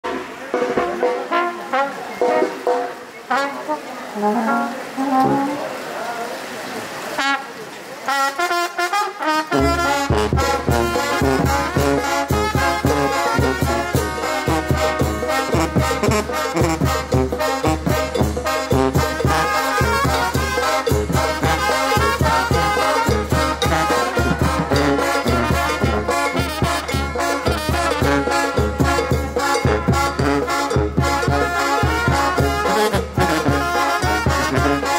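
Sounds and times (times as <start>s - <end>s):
trumpets and trombones: 0.0s - 5.8s, 7.1s - 34.9s
bass line: 9.6s - 34.9s
percussion dance beat: 10.3s - 34.9s.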